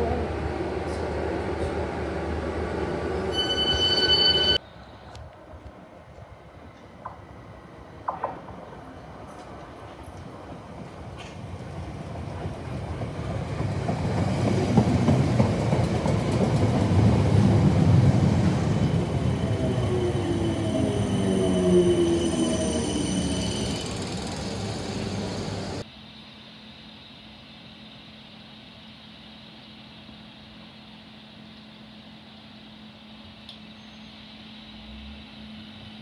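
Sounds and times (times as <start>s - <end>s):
train whining tones: 0.0s - 4.6s, 13.5s - 25.8s
train wheels rumbling on track: 5.6s - 25.8s.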